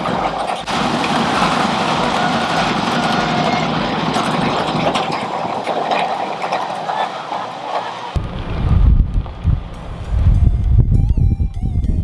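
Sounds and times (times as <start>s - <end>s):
chain feeder running: 0.0s - 8.1s.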